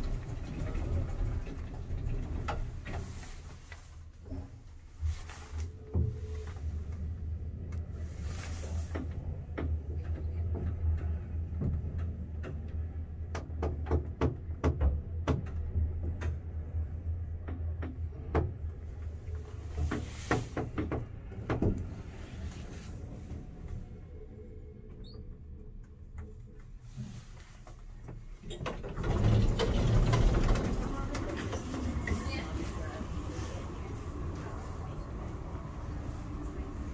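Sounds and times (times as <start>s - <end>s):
lift car humming: 0.0s - 13.6s, 28.3s - 36.9s.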